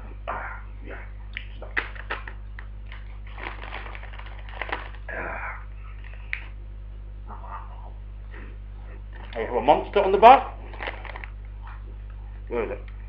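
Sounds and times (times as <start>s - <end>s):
crisp packet crinkling: 1.8s - 5.1s, 10.7s - 11.4s.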